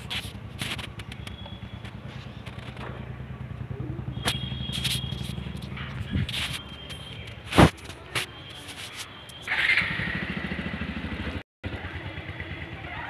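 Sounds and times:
vehicle engine idling: 0.0 - 7.5, 9.5 - 13.0
scrapes: 4.2 - 9.4.

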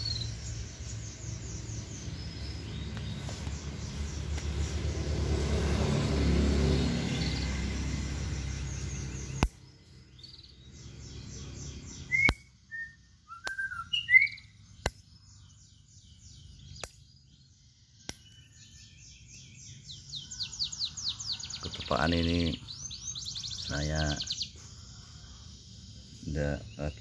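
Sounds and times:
vehicle engine rumble: 0.0 - 12.5
songbirds singing: 0.0 - 27.0.

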